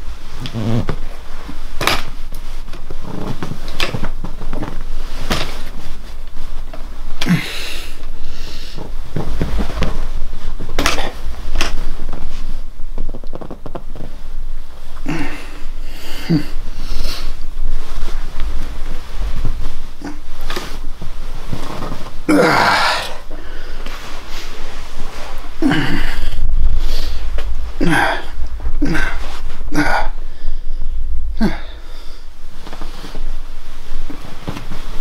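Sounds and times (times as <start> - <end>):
steady low hum: 0.0 - 35.0
person shifting on bedding: 0.4 - 7.4, 17.6 - 26.1, 32.5 - 35.0.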